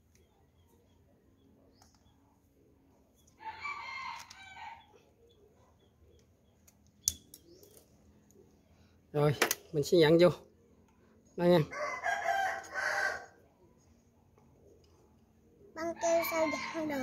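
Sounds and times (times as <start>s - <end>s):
rooster crowing: 3.4s - 4.9s, 11.7s - 13.4s.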